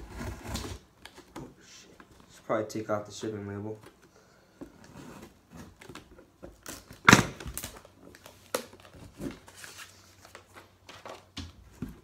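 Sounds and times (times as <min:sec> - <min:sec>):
packing tape ripping off cardboard: 0:00.0 - 0:01.3, 0:05.2 - 0:09.9.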